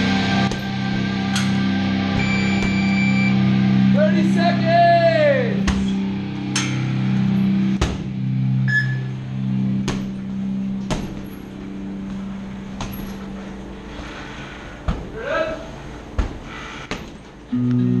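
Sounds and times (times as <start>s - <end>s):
low hum: 0.0s - 4.6s, 5.2s - 16.5s, 17.2s - 18.0s
punches and kicks on heavy bag: 7.8s - 8.2s, 9.8s - 11.4s.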